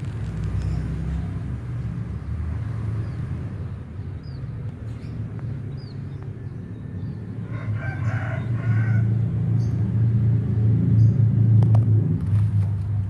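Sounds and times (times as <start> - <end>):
rooster crowing: 7.4 - 9.4.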